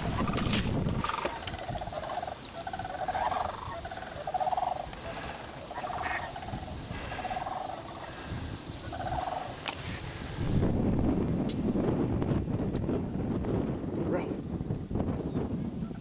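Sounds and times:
ducks quacking: 0.0 - 9.9.

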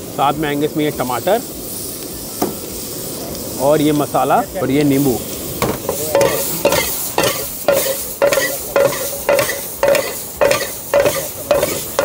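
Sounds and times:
food sizzling in butter: 0.0 - 12.0
metal spatula scraping frying pan: 5.7 - 12.0.

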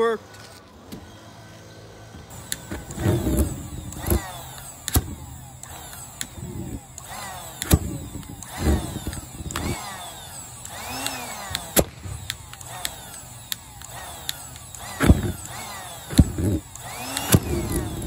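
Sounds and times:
pulsejet popping: 10.6 - 18.0.

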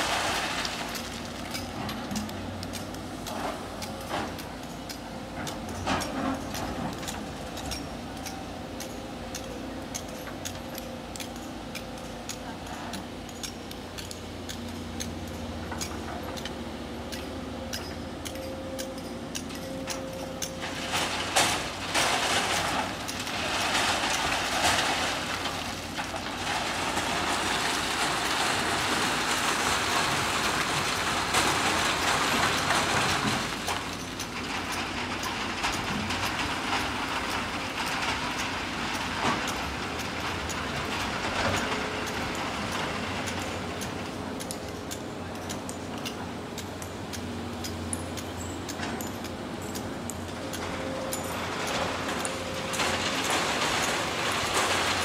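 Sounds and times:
rocky sand pouring into truck bed: 0.0 - 1.4, 20.8 - 33.8, 52.7 - 55.0
diesel engines humming: 0.0 - 55.0.

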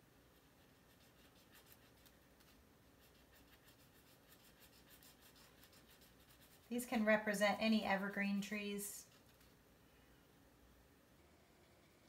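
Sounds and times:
marker scratching on paper: 0.4 - 6.9.

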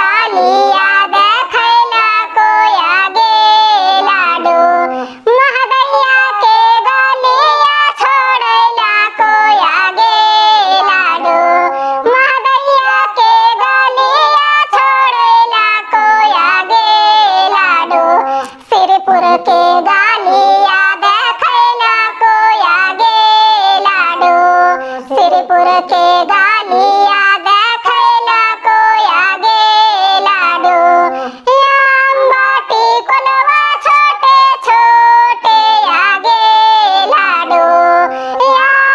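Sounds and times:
high pitch-shifted voice singing: 0.0 - 38.9.

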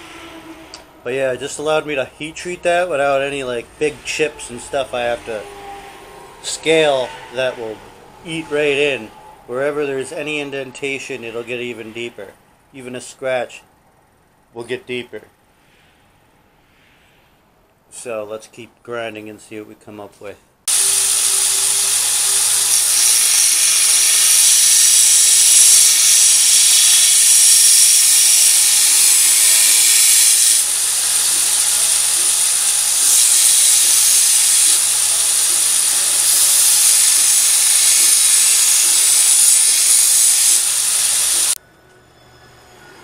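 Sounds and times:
belt grinder grinding metal: 20.7 - 41.6.

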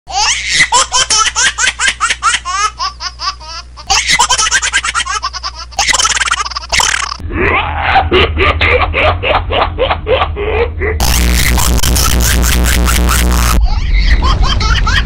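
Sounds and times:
baby laughing: 0.1 - 15.0
sped up laughing chatter: 7.4 - 15.0.

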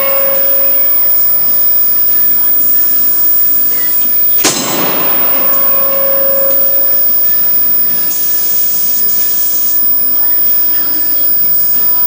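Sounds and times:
ringing metallic clank: 3.7 - 9.8.

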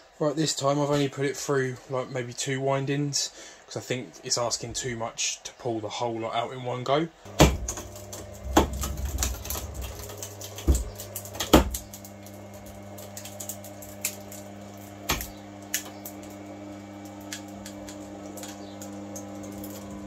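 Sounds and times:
electric motor humming: 7.3 - 20.0
sharp clicks and cracks: 7.3 - 20.0.

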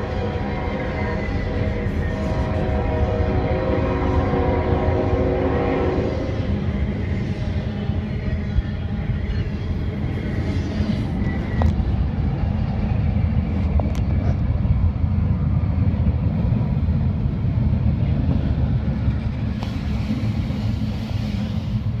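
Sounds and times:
freight train rumbling: 0.0 - 22.0
rail clicks: 6.5 - 22.0.

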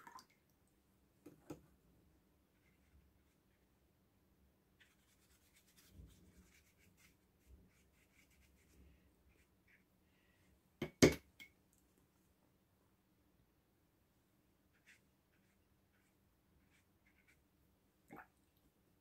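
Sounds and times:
brush rubbing on paper: 4.8 - 9.9, 14.7 - 17.5.

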